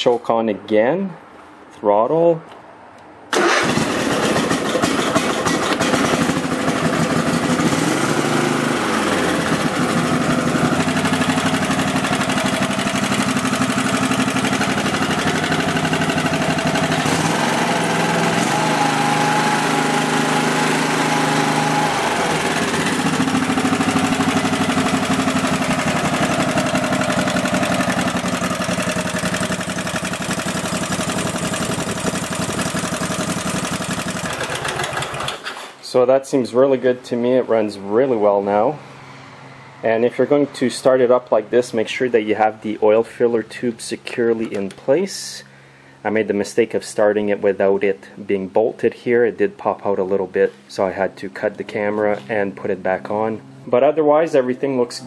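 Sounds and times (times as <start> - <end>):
lawn tractor engine running: 3.3 - 35.7.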